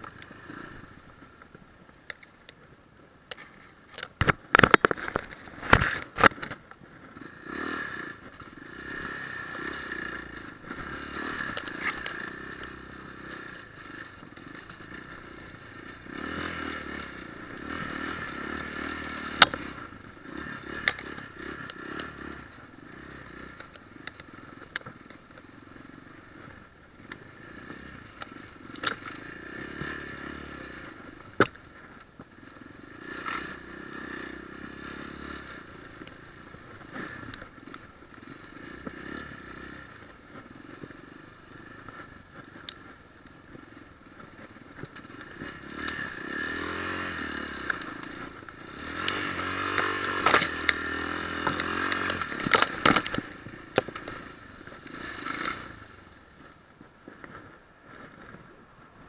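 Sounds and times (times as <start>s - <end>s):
knocks and clatter from bike: 3.3s - 7.3s, 47.4s - 55.8s
dirt bike engine revving: 7.1s - 24.5s, 27.2s - 31.8s, 32.4s - 42.1s, 44.7s - 56.1s.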